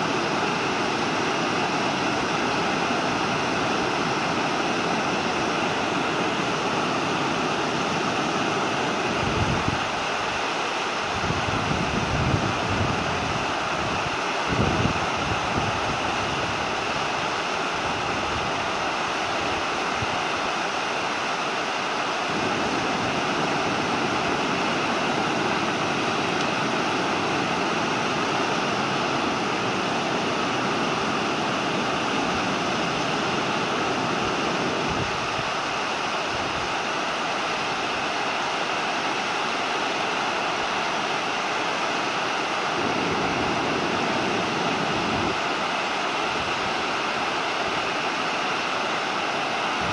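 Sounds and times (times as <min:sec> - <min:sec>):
river water rushing over a weir: 0:00.0 - 0:49.9.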